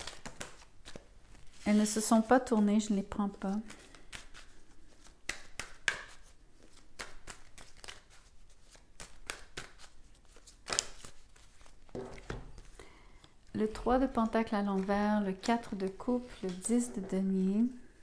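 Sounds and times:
cards being shuffled: 0.0 - 2.6, 3.3 - 17.2.

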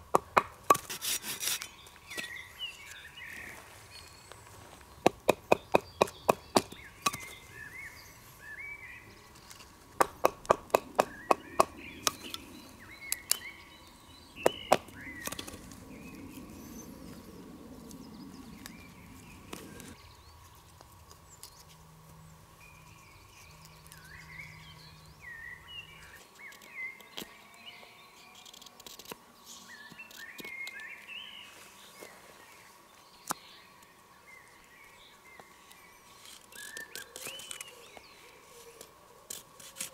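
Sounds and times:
birds chirping: 0.0 - 39.2.

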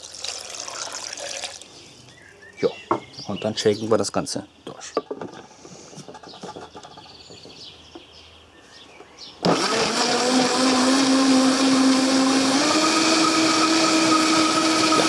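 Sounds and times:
blender running: 9.4 - 15.0.

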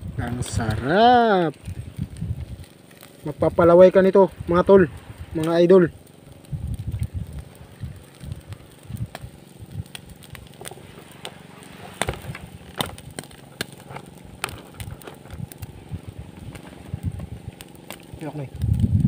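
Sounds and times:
cooking fire crackling and popping: 0.0 - 19.0.

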